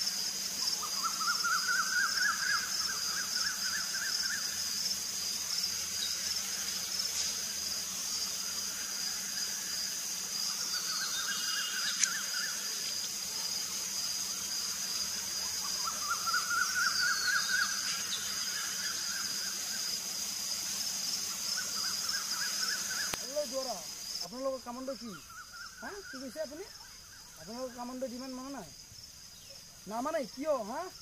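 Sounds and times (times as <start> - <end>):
insects buzzing: 0.0 - 31.0
sharp click: 11.9 - 12.2.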